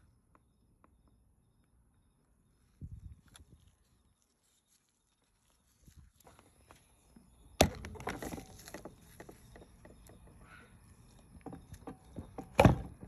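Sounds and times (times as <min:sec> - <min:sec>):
plastic clattering and rustling: 0:07.6 - 0:10.3.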